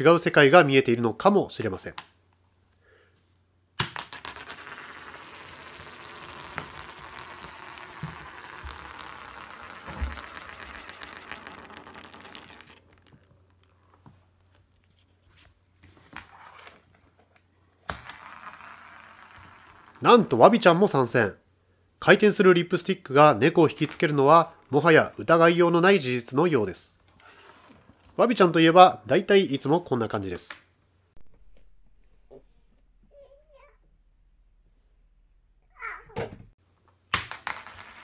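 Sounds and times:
tube spinning rattle on wood: 4.0 - 13.8, 18.0 - 20.1.

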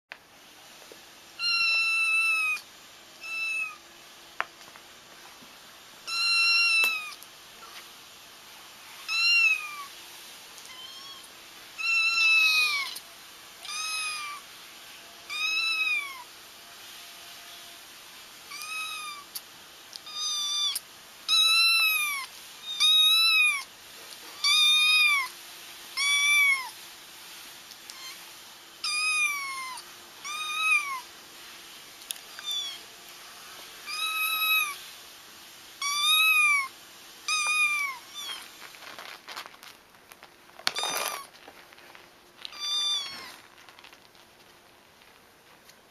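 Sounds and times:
kittens mewing: 42.5 - 43.5.

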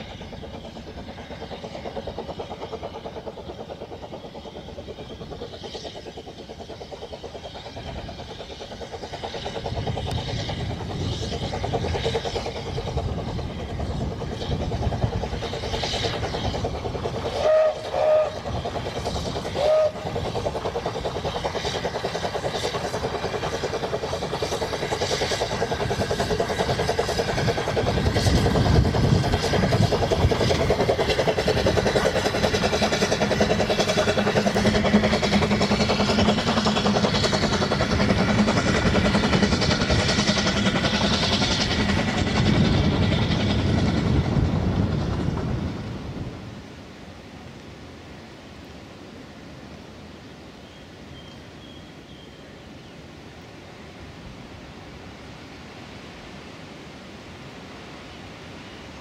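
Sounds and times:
steam train running: 0.0 - 59.0
steam whistle toots: 17.3 - 18.5, 19.5 - 20.1.

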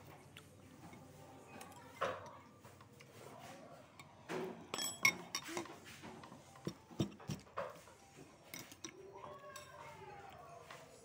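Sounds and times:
cutlery clinking in ceramic bowl: 4.7 - 5.7, 8.4 - 9.8.

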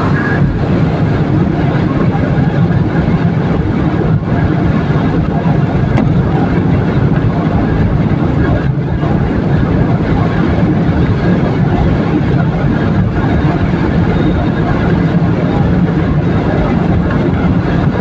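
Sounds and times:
road and engine noise inside car: 0.0 - 18.0
tyres on wet road: 0.0 - 18.0.

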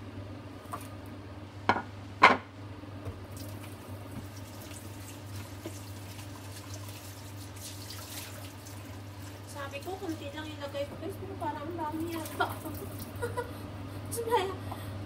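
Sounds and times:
food bubbling and sizzling in a pan: 3.2 - 10.8.

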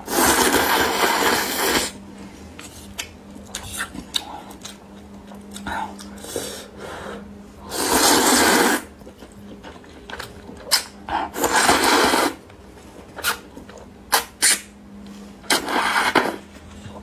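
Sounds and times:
noodles being slurped: 7.7 - 8.9, 11.3 - 12.4.

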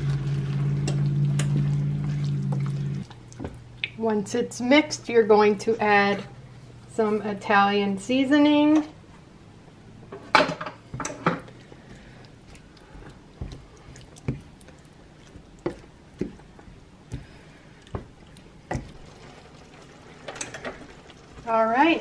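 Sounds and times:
utensil stirring thick sauce: 11.5 - 21.6.

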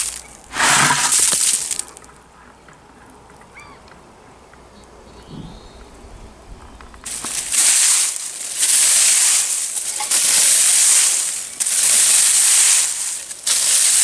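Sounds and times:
rake scratching through dry leaves: 0.0 - 2.0, 7.0 - 14.0.

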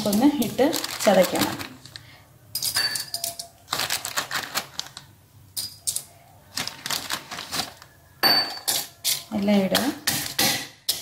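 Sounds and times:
metal pestle pounding in mortar: 9.8 - 11.0.

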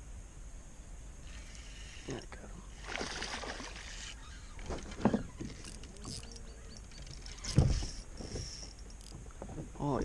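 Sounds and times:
fish splashing in water: 2.8 - 6.1.

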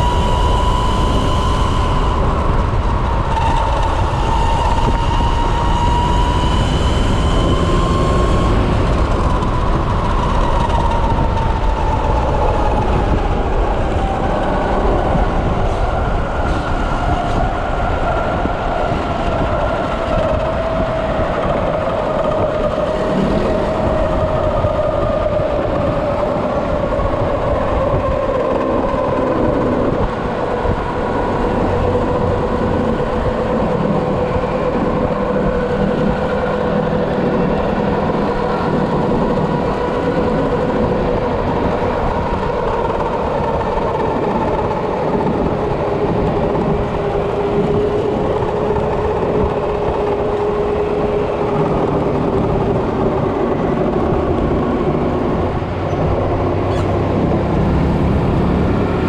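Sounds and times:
electric motor whine: 0.0 - 13.8
wind rushing on microphone: 0.0 - 59.0.

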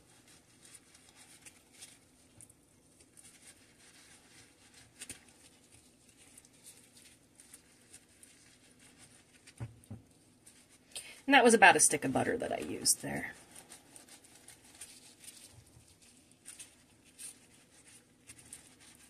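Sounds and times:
soft clicks and squishes: 0.0 - 11.0, 13.3 - 19.0.

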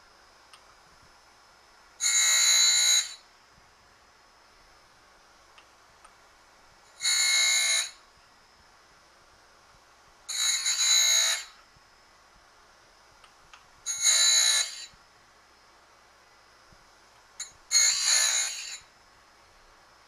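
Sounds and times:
grinding wheel on metal: 7.0 - 8.0, 10.3 - 11.6, 13.9 - 15.0, 17.7 - 18.9.

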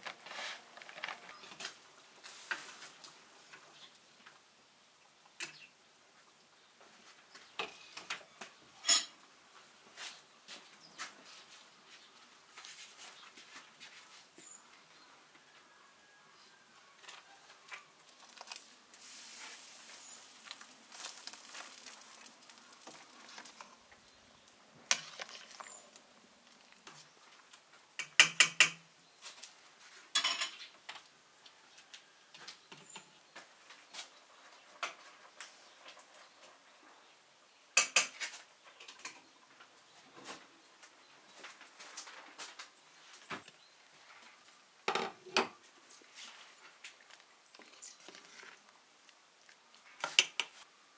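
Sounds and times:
metal pots and spoon clinking: 8.8 - 9.2, 30.1 - 30.6.

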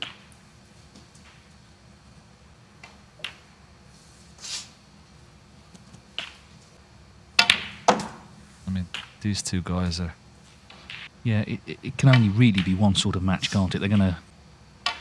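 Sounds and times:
snooker balls clicking: 2.8 - 3.6, 5.7 - 6.8, 7.4 - 8.2, 8.8 - 9.2, 10.7 - 11.1, 12.0 - 14.2.

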